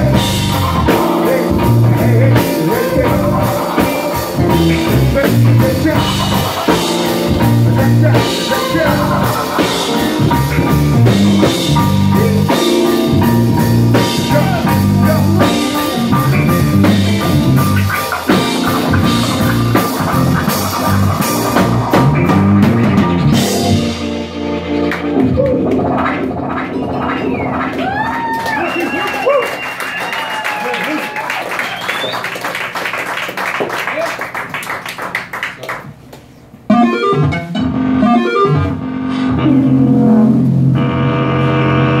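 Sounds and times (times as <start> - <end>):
busy bass line: 0.0 - 28.3, 36.7 - 42.0
live jazz-rock band: 0.0 - 33.6.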